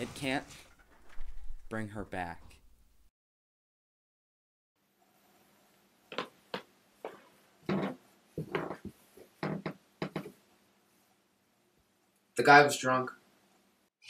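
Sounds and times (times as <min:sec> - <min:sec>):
rustling: 0:00.0 - 0:03.1.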